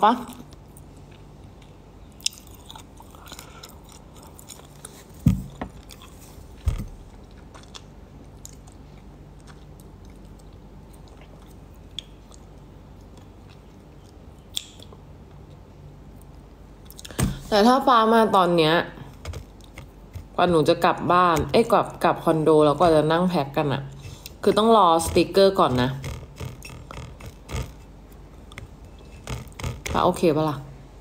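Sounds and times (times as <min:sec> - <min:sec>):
person chewing food: 0:00.4 - 0:17.2, 0:26.1 - 0:29.9.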